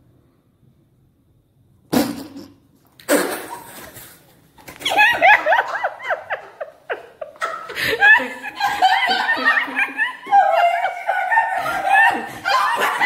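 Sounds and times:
high-pitched laughter: 0:04.8 - 0:13.0.

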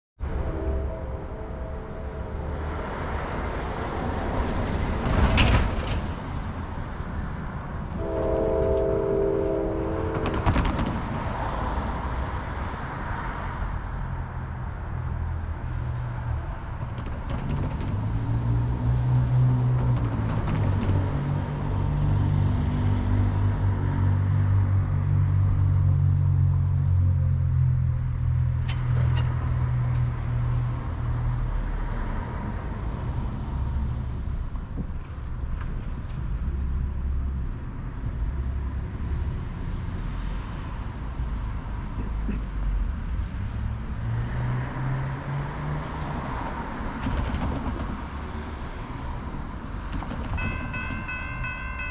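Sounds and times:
distant locomotive horn: 0:00.2 - 0:04.9, 0:07.9 - 0:11.9, 0:50.4 - 0:51.9
diesel locomotives droning: 0:00.2 - 0:51.9
road traffic rumbling: 0:00.2 - 0:51.9.

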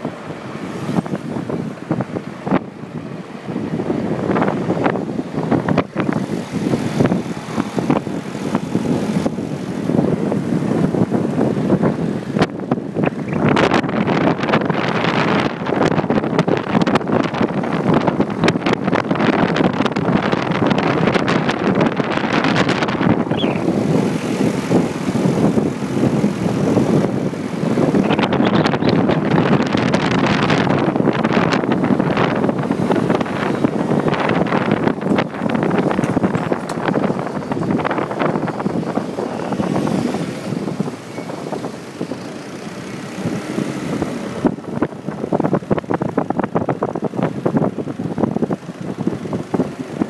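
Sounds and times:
street traffic: 0:00.0 - 0:50.0
wind buffeting microphone: 0:00.0 - 0:50.0
motorcycle engine running: 0:19.2 - 0:50.0.

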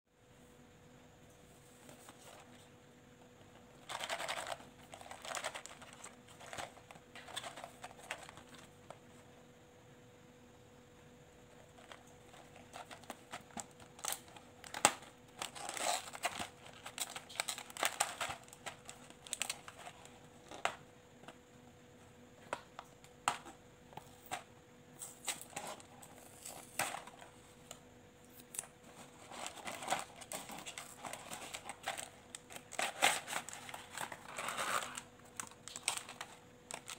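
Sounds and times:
faint steady hum: 0:00.1 - 0:36.9
cardboard packaging crinkling: 0:03.6 - 0:09.0, 0:11.6 - 0:20.7, 0:28.5 - 0:36.9.

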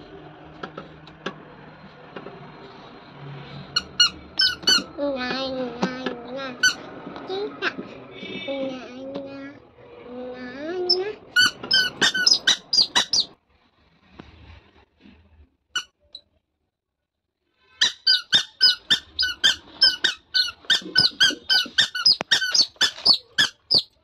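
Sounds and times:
squeaky shoes squeaking: 0:03.8 - 0:05.0, 0:06.6 - 0:07.5, 0:10.9 - 0:13.4, 0:17.8 - 0:24.0.

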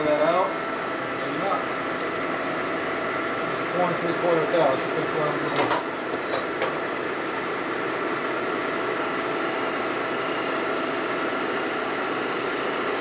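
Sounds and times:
milling machine cutting metal: 0:08.5 - 0:13.0.

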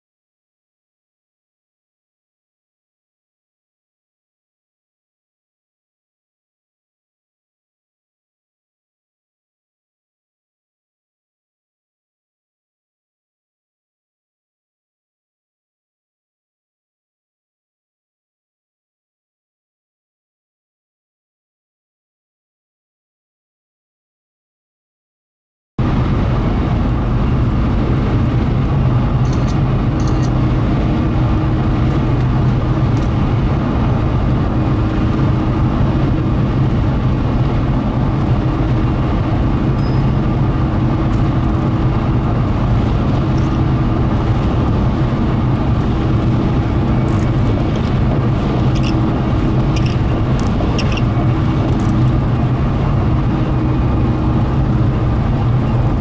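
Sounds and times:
car engine and road noise: 0:25.8 - 0:56.0.

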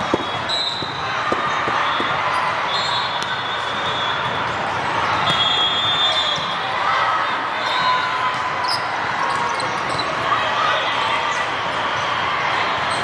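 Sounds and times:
volleyball being struck: 0:00.0 - 0:02.4
hubbub of players and crowd: 0:00.0 - 0:13.0.

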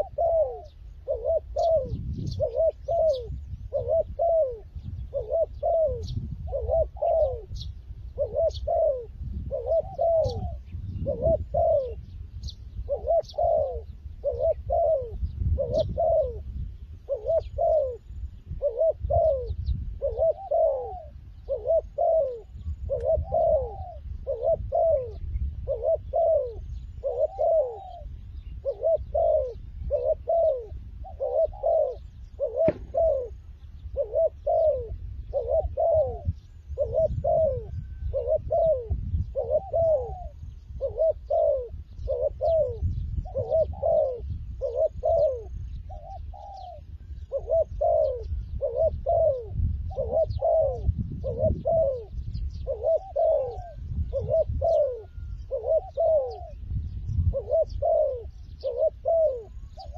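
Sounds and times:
dove cooing: 0:00.0 - 0:59.9.

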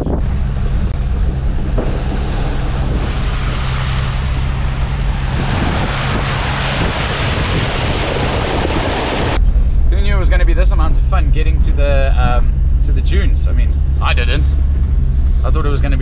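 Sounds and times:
engine droning: 0:00.0 - 0:16.0
tyres splashing through water: 0:00.2 - 0:09.4.

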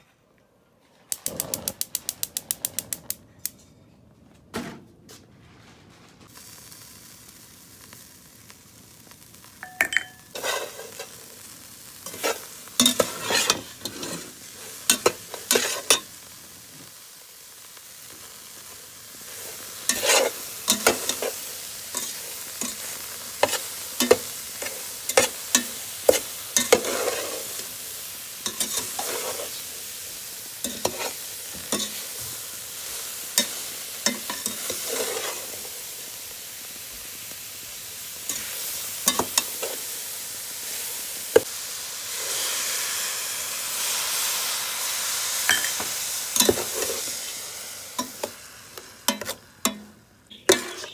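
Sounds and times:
steady hiss of heating pot: 0:06.2 - 0:50.9
spoon scraping metal pot: 0:12.1 - 0:14.3, 0:19.9 - 0:21.4, 0:23.4 - 0:27.6, 0:49.1 - 0:50.9.

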